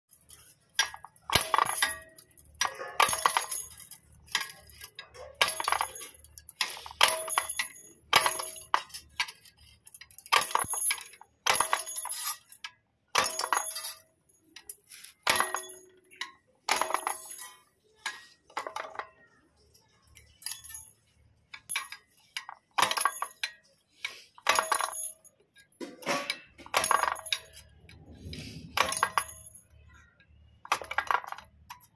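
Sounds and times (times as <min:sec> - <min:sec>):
cut rods dropping onto pile: 0:00.3 - 0:12.5, 0:14.6 - 0:19.2, 0:25.8 - 0:27.7, 0:28.3 - 0:29.5, 0:30.7 - 0:31.9.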